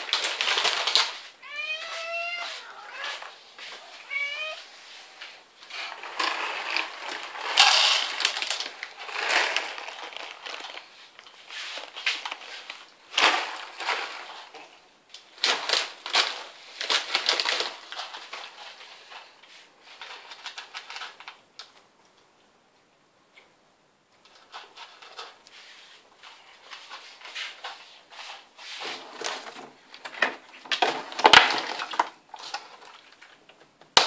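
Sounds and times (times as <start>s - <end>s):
cat meowing: 1.4s - 4.8s
cat crunching dry kibble: 5.9s - 11.4s.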